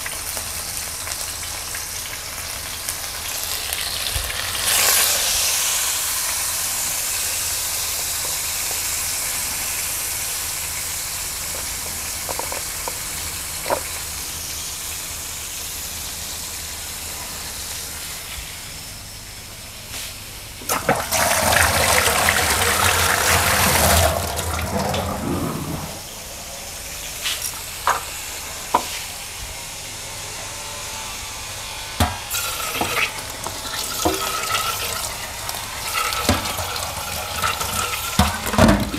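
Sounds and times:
chicken sizzling in oil: 0.0s - 18.1s, 20.6s - 25.8s, 31.6s - 38.9s
loud rushing noise: 23.1s - 27.2s.

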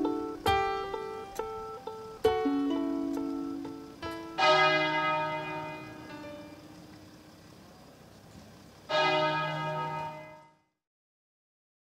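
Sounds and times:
church bell tolling: 4.3s - 7.0s, 8.9s - 10.6s.

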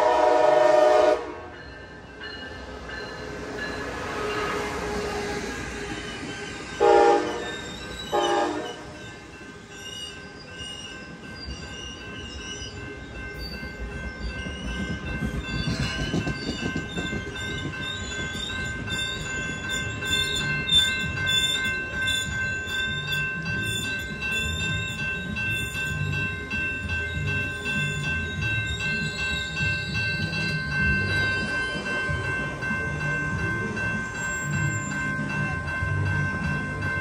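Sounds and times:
train horn blasts: 0.0s - 1.5s, 6.8s - 7.5s, 8.1s - 9.0s
crossing warning bell ringing: 0.0s - 37.0s
passing train rumble: 0.0s - 37.0s.

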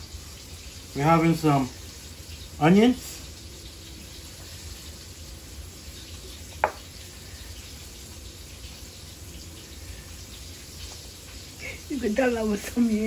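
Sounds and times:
sharp tap: 6.6s - 6.8s.

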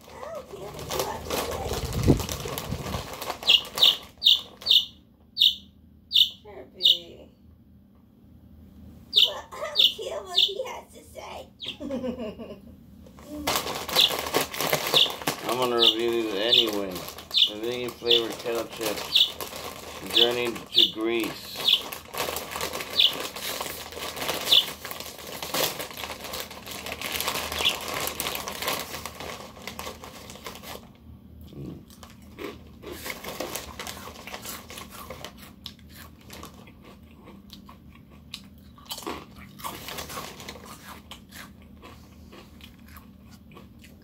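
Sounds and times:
chip bag crinkling: 0.0s - 4.9s, 13.2s - 31.0s, 31.9s - 37.8s, 38.8s - 43.8s
crunching chips: 0.0s - 5.6s, 13.2s - 31.0s, 31.8s - 44.0s
quiet chewing: 31.4s - 44.0s.

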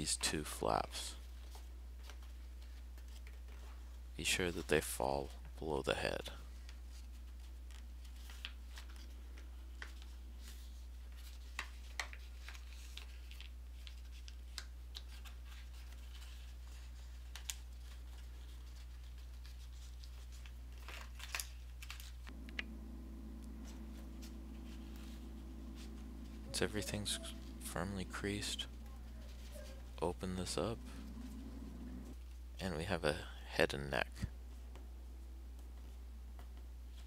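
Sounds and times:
paper rustling and crinkling: 6.6s - 22.4s
small sharp paper crackles: 6.7s - 22.4s
steady low hum: 22.3s - 37.0s.

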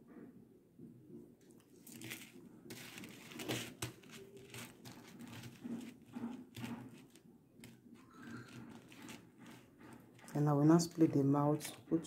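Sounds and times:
soft rustling: 1.6s - 11.8s.

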